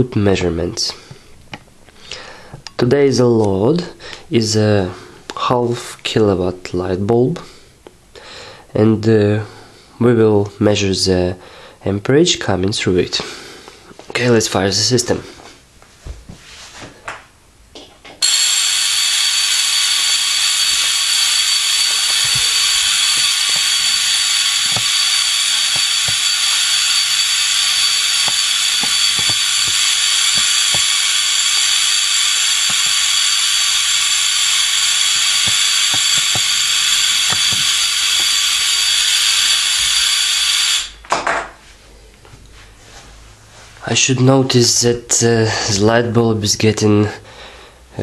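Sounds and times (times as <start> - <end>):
spark gap hissing and whining: 18.2 - 41.1.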